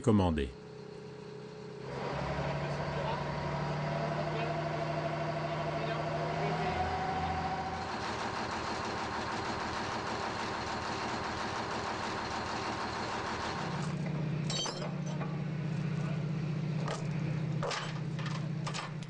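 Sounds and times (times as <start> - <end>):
heavy machinery engine humming: 1.1 - 19.0
sharp metallic clinks: 14.4 - 15.2.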